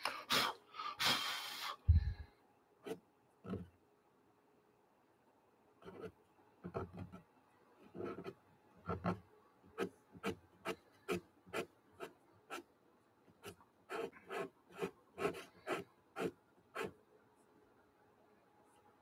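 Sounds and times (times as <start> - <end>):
pastel pencil scratching on paper: 7.9 - 9.2, 9.8 - 12.7, 13.4 - 17.0.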